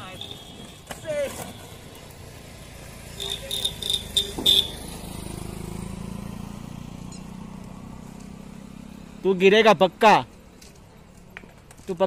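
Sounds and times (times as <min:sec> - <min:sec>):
short horn beeps: 0:00.0 - 0:01.9, 0:03.1 - 0:04.8
road vehicle humming: 0:00.0 - 0:12.0.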